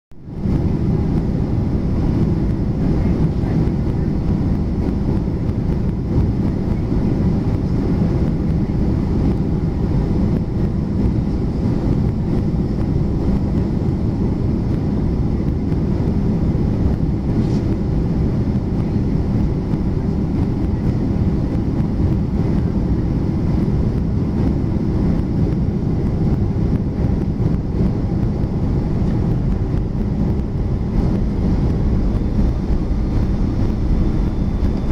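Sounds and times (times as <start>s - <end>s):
jet engines idling: 0.3s - 34.9s.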